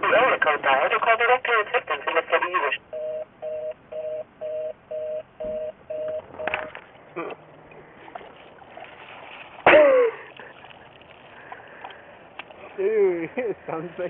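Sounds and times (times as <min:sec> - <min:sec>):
faint outdoor noise: 0:00.0 - 0:14.0
telephone fast busy signal: 0:02.9 - 0:06.7.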